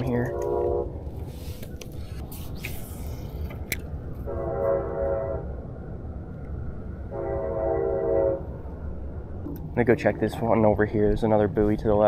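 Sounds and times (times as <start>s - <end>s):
horn blast: 0.0s - 1.0s, 4.2s - 5.6s, 7.1s - 8.6s
low steady rumble: 0.0s - 12.0s.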